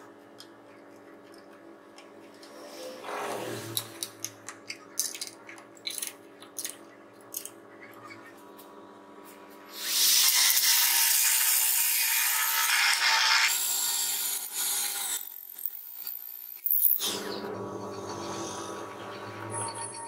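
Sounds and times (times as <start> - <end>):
drill boring through plywood: 9.8 - 17.4.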